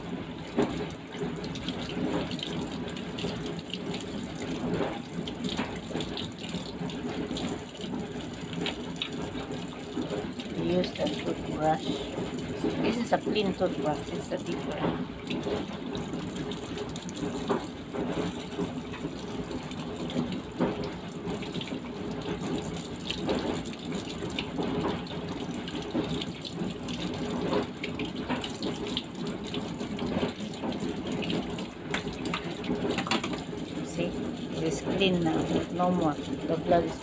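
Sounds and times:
tap running into steel sink: 31.2 - 33.5.

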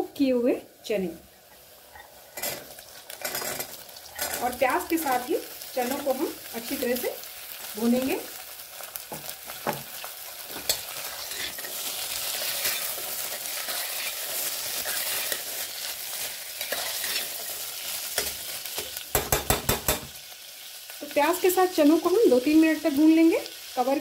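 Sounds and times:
chickpeas sizzling in hot oil: 0.0 - 24.0
metal ladle scraping a pot: 10.6 - 11.8.

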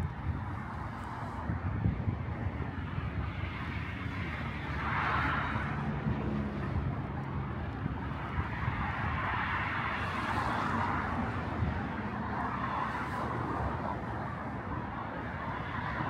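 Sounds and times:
road traffic rumble: 0.0 - 16.0
vehicle tyre noise passing: 0.0 - 16.0.

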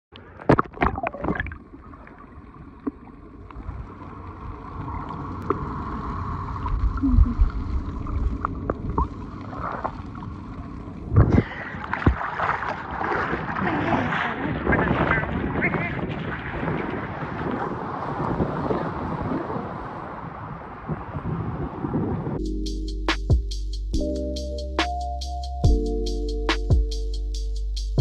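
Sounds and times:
underwater churning wash: 0.1 - 22.4
wind: 0.1 - 27.2
splash: 4.7 - 10.4, 11.2 - 20.8
lapping water: 11.2 - 19.7.

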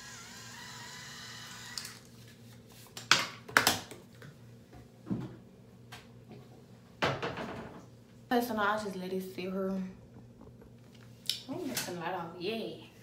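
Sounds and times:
electric cleansing brush buzzing: 0.0 - 2.1
objects knocking and clattering: 6.3 - 7.9.

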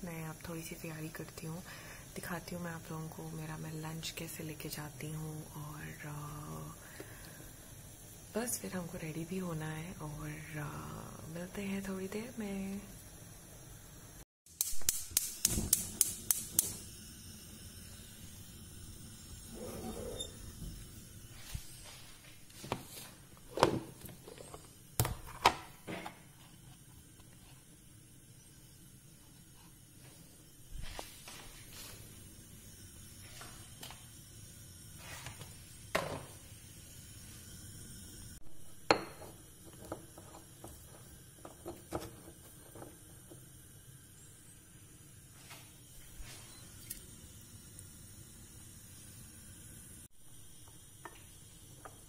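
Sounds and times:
kitchenware clinking and tapping: 38.8 - 43.4
kitchenware knocking: 38.9 - 40.8.

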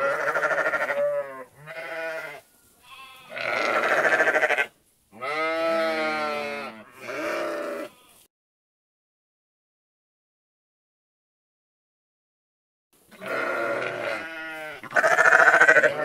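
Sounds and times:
sheep bleating: 0.0 - 8.3, 13.1 - 16.0.

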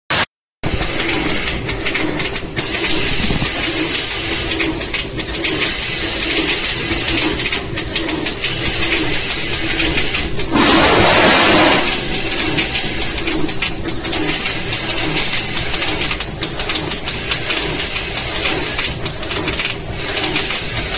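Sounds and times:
rushing hiss: 10.5 - 13.2.

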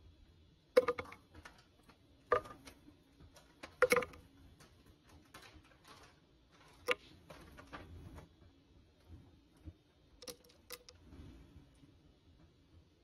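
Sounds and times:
items clattering in plastic blender jar: 0.8 - 8.2.

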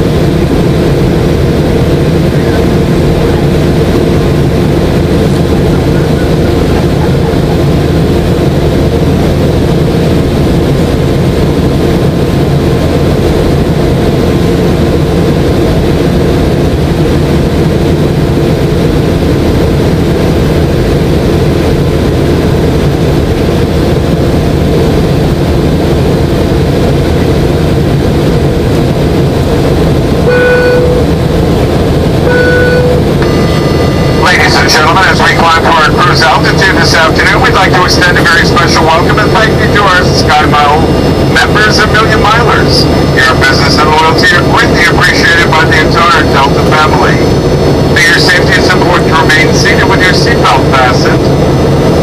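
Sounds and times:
jet engine drone in cabin: 0.0 - 52.0
low hum: 0.0 - 52.0
cabin announcement: 30.2 - 31.4, 32.2 - 51.4
two-tone cabin chime: 30.3 - 31.2, 32.2 - 34.3.

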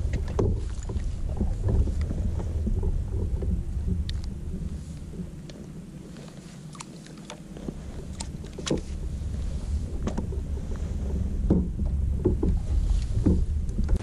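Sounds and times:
gear knocking on plastic kayak: 0.0 - 5.4, 11.3 - 14.0
low rumble: 0.0 - 14.0.

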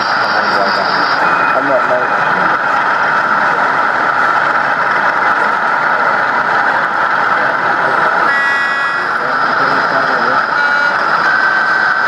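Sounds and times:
model diesel engine sound: 0.0 - 12.0
pitched tone: 8.3 - 9.8, 10.4 - 12.0.

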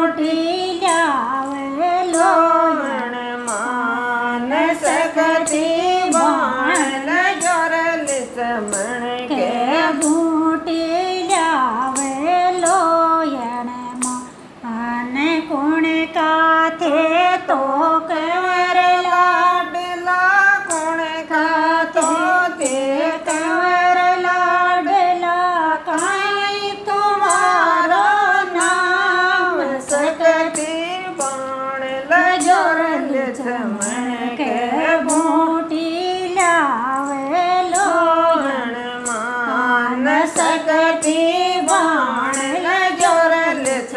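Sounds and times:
woman singing folk song: 0.0 - 43.9.

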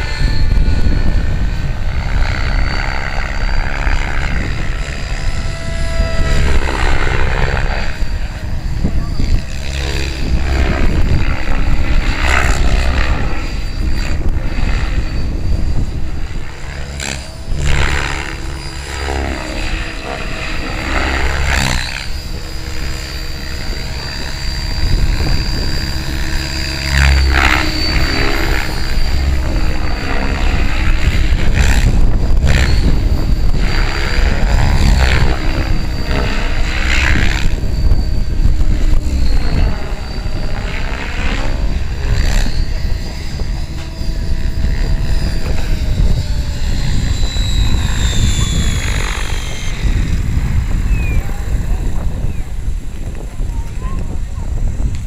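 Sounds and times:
model helicopter flying: 0.0 - 55.0.

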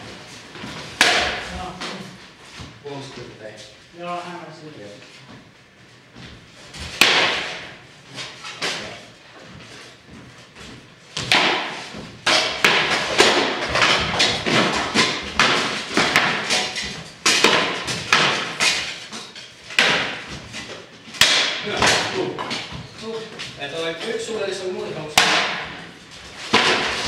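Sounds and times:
swords striking shields and armour: 1.0 - 1.6, 6.9 - 7.7, 11.2 - 20.4, 21.2 - 22.7, 25.1 - 25.8, 26.5 - 27.0.

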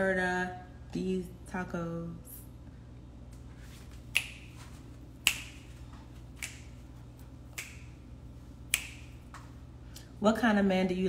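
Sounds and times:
fingers snapping: 4.1 - 6.8, 7.5 - 8.0, 8.6 - 9.5.

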